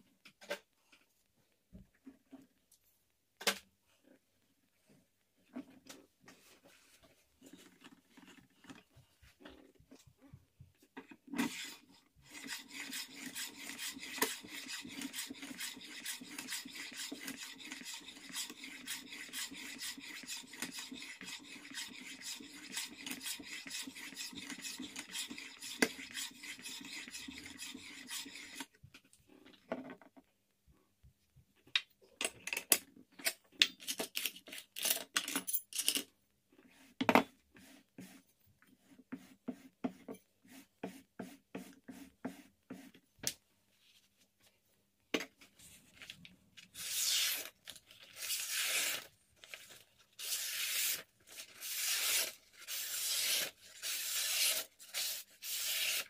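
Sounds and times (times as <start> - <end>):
steel scraping on sharpening stone: 11.6 - 28.7.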